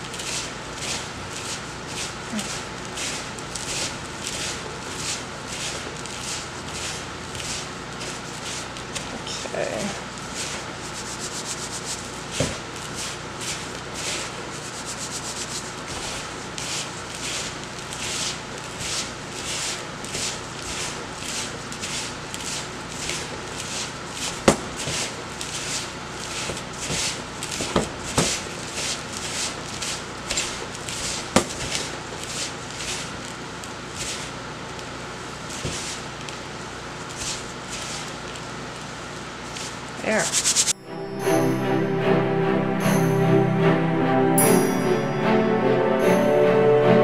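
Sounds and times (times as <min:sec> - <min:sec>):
gloved hands kneading gritty mixture: 0:00.0 - 0:09.4, 0:10.0 - 0:34.5.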